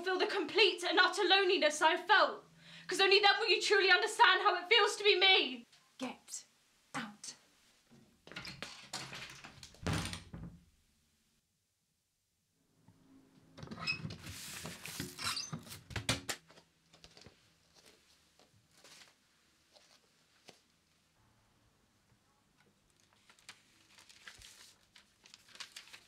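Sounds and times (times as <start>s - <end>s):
door rustling and thuds: 8.3s - 10.6s.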